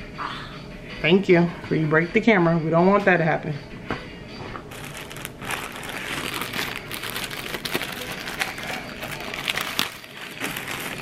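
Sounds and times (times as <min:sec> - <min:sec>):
plastic wrapping crinkling: 0:04.7 - 0:11.0.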